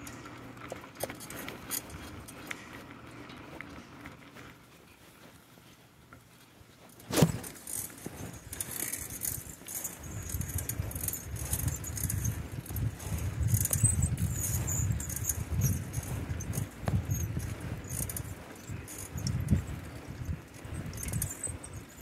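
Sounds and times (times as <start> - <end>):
bicycle metallic jingling rattle: 0.0 - 2.8, 6.8 - 22.0
wind rumble on microphone: 8.1 - 22.0.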